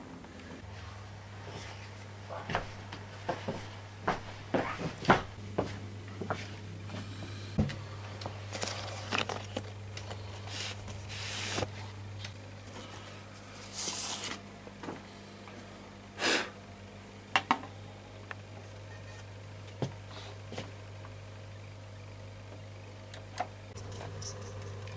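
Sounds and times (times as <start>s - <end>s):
steady low hum: 0.0s - 24.9s
record sleeve rustling: 8.2s - 12.4s.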